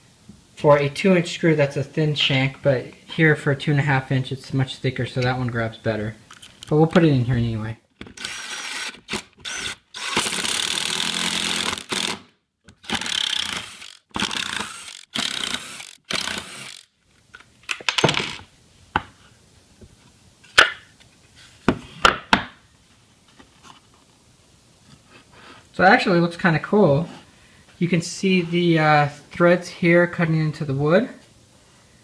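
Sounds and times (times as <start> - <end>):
power driver driving screw: 8.0 - 16.9.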